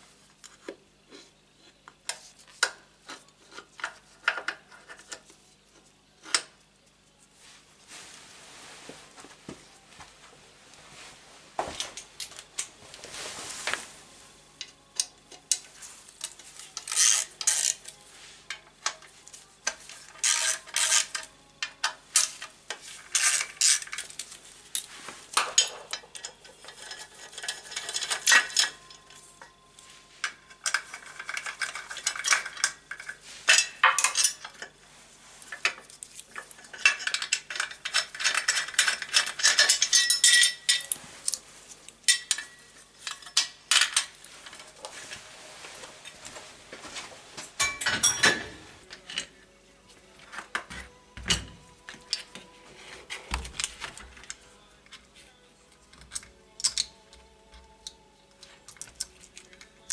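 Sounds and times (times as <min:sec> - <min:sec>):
metal hand tools clinking: 0:36.5 - 0:41.0.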